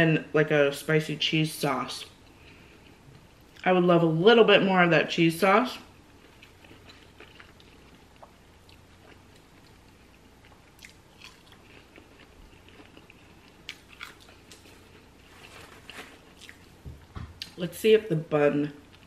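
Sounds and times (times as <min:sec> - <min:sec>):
person chewing fries: 0:06.0 - 0:16.8.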